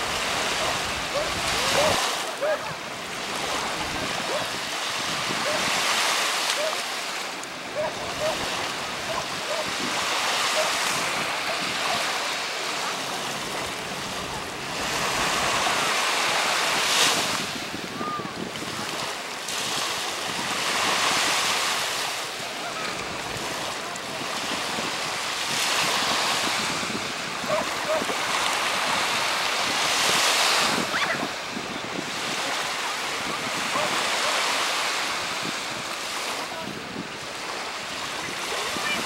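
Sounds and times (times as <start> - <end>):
wind buffeting the microphone: 0.0 - 6.4, 7.6 - 39.0
waves washing onto a beach: 0.0 - 39.0.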